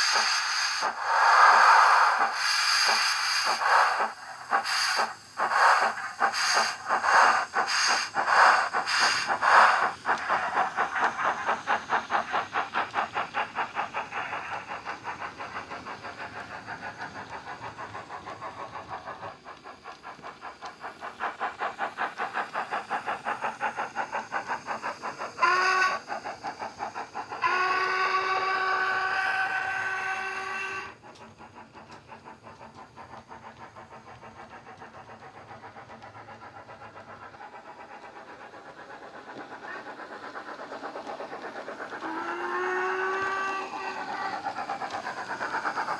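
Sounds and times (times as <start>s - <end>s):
model steam locomotive chuffing: 0.0s - 45.9s
locomotive whistle: 27.4s - 30.9s.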